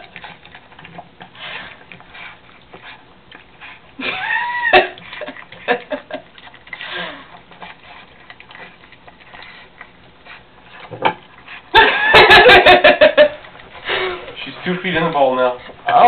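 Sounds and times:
puppy chomping food: 0:00.0 - 0:04.0, 0:04.8 - 0:12.2
puppy sniffing and snorting: 0:00.0 - 0:04.0, 0:05.0 - 0:11.8.

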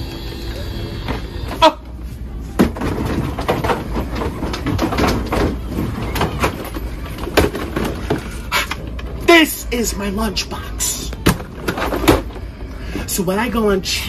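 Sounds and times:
suitcases knocking and rattling: 0:02.5 - 0:09.1.

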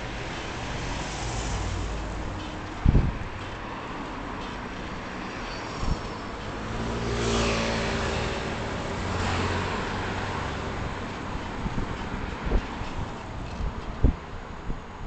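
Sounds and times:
road and wind noise: 0:00.0 - 0:15.0
vehicle passing: 0:06.5 - 0:11.8
motor scooter passing: 0:06.6 - 0:11.8.

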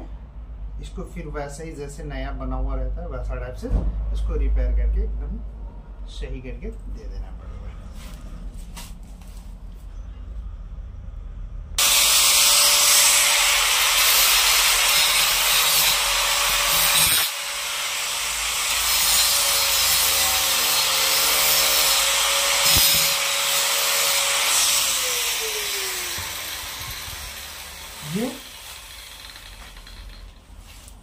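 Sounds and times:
angle grinder cutting hose: 0:11.8 - 0:30.4
grinder spinning down: 0:11.8 - 0:30.4.

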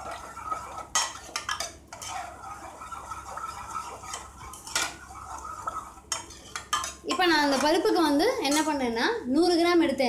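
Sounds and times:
ladle clinking against pot: 0:05.7 - 0:07.7.

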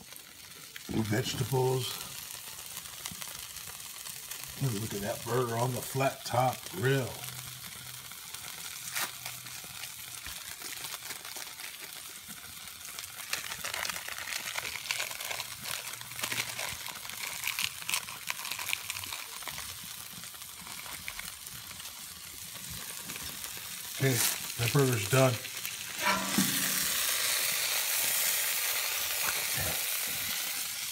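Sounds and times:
burger patty sizzling on griddle: 0:00.0 - 0:30.9.

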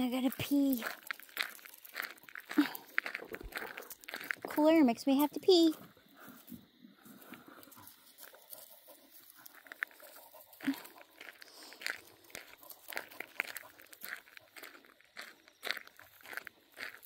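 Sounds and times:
footsteps crunching on gravel: 0:00.0 - 0:17.0.

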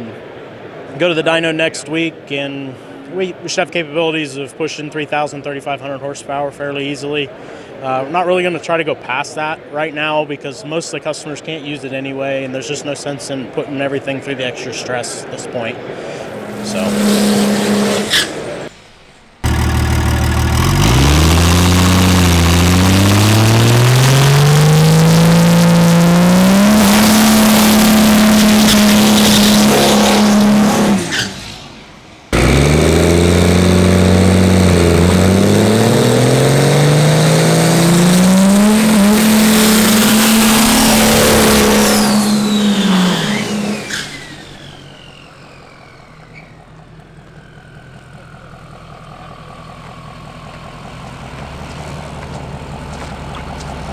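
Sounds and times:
diesel truck engine at full throttle: 0:15.8 - 0:53.9
high whine falling in pitch: 0:16.3 - 0:18.2, 0:38.3 - 0:48.6.

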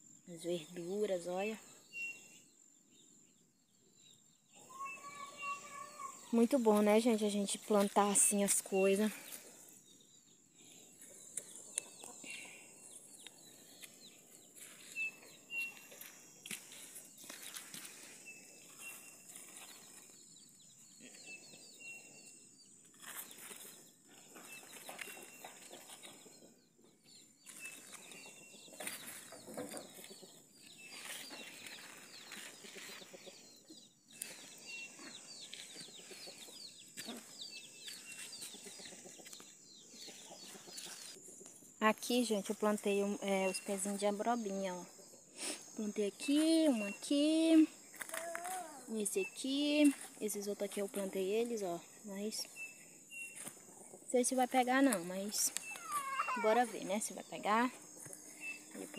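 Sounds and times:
chickens peeping and clucking: 0:23.4 - 0:41.7.

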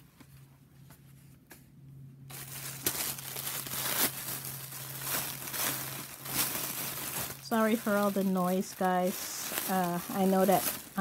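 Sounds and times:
plastic packaging crinkling: 0:02.3 - 0:11.0.

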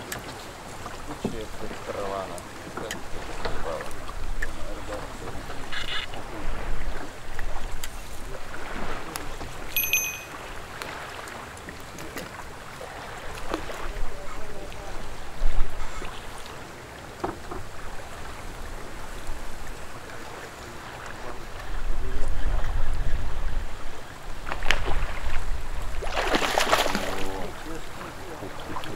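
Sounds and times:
water lapping: 0:00.0 - 0:28.9
wind: 0:00.0 - 0:28.9
short high chirp: 0:09.8 - 0:10.4.

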